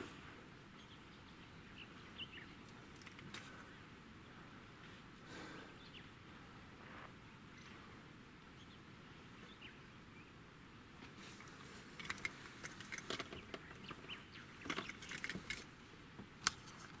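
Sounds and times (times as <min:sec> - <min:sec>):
small clicks and rattles: 0:02.7 - 0:03.5, 0:11.3 - 0:15.7.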